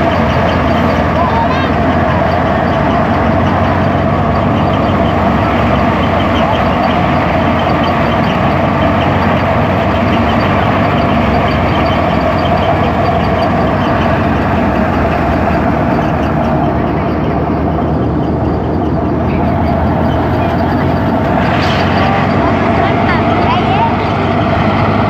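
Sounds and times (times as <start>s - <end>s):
threshing machine droning: 0.0s - 25.0s.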